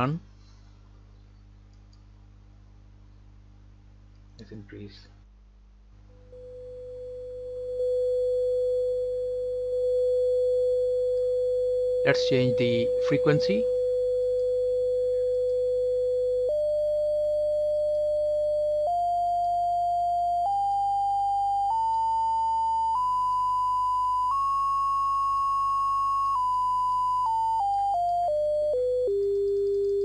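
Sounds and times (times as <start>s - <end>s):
sine tone stepping in pitch: 6.1s - 30.0s.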